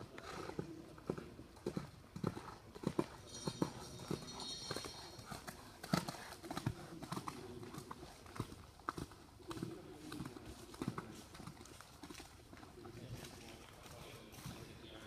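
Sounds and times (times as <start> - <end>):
horse hooves clip-clopping: 0.0 - 15.0.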